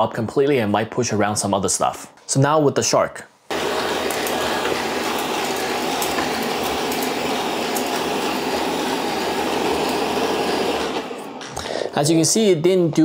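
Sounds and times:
robot vacuum whirring: 3.5 - 11.9.

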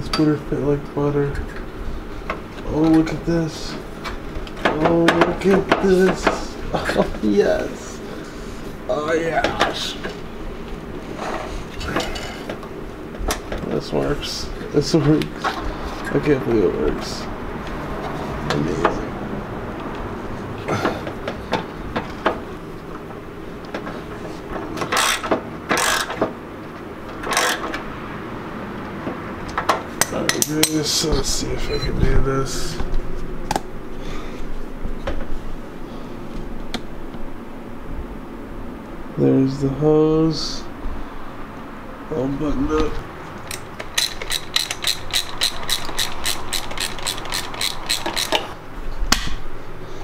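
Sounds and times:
sharp metal clicks: 43.4 - 48.5
hand tool rasping: 43.9 - 48.5.

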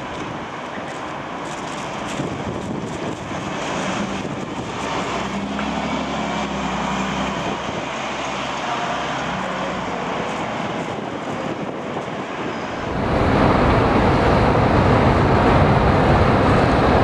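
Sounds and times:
buses and cars driving past: 0.0 - 17.0.

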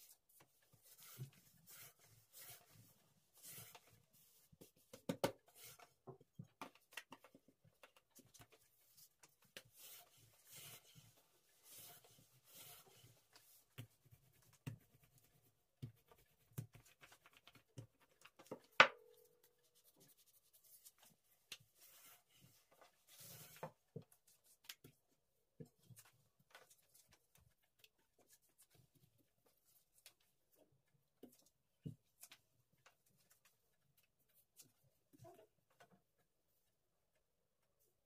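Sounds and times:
rolling pin rolling dough: 0.4 - 6.8.

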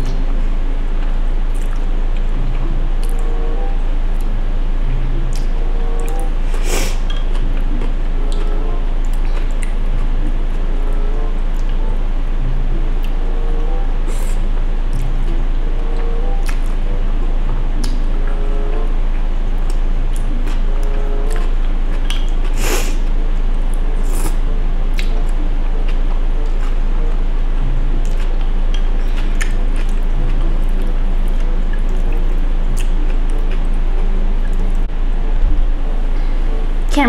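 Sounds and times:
low hum: 0.0 - 37.0
person chewing noodles: 1.0 - 34.9.

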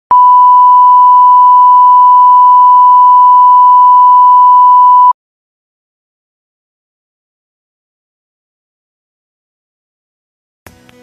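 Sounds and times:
steady pure test tone: 0.1 - 5.1.

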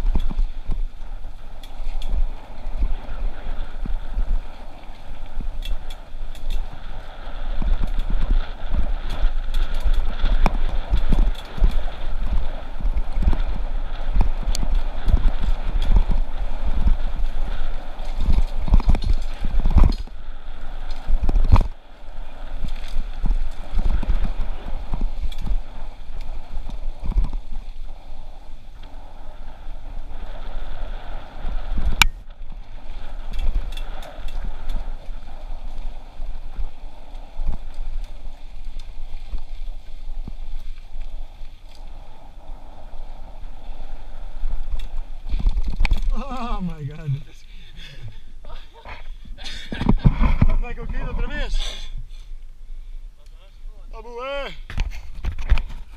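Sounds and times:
bike rattling over trail: 0.0 - 52.5, 53.5 - 55.9
wind buffeting microphone: 0.0 - 55.9.

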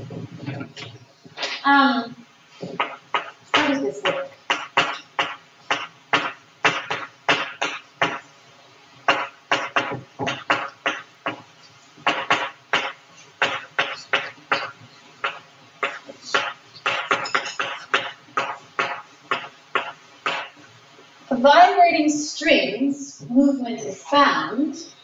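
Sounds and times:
chalk tapping and scratching on blackboard: 2.6 - 8.2, 9.1 - 20.7.

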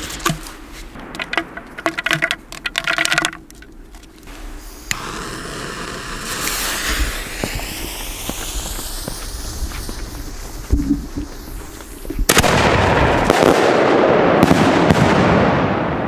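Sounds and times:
fuse burning with sputtering hiss: 3.7 - 12.5
lighter flame hissing: 4.2 - 12.3.

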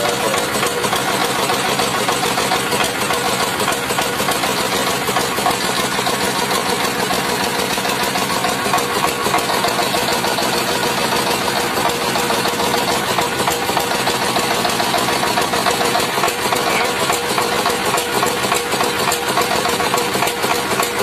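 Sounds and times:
diesel engine running: 0.0 - 21.0
rice huller milling: 0.0 - 21.0.

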